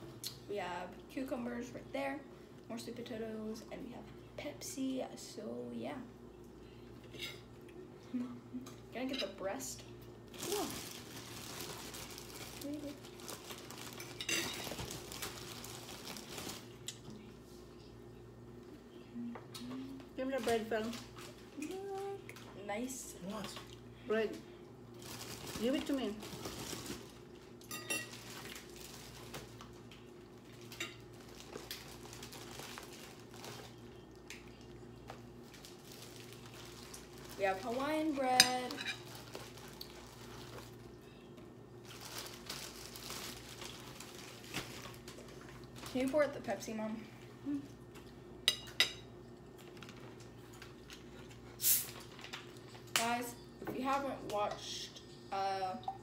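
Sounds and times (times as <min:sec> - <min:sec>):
plastic bag crinkling: 0:10.3 - 0:17.0, 0:24.9 - 0:34.3, 0:35.0 - 0:41.0, 0:41.8 - 0:46.4
hiss of bottle opening: 0:51.6 - 0:51.9.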